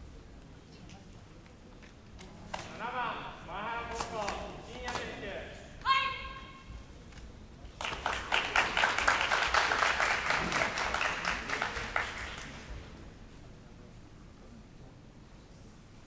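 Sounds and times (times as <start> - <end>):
audience clapping: 7.7 - 12.9.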